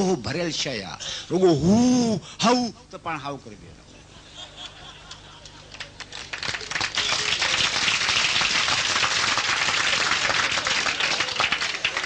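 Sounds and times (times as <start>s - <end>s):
crowd applauding: 5.1s - 12.0s.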